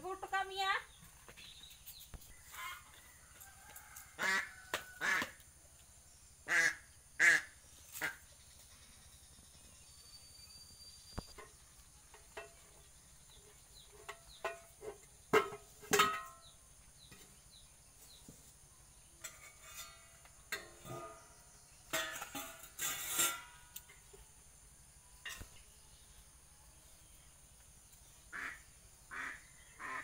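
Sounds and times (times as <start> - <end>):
metal pots and plates clattering: 13.9 - 16.5, 19.2 - 23.7.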